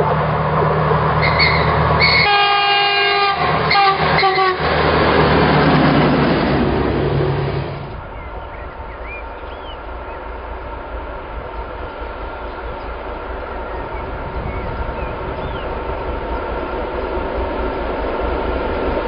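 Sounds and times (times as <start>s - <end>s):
train engine and wheels passing: 0.0s - 19.0s
train horn blasts: 1.2s - 4.8s
birds chirping: 7.9s - 18.2s.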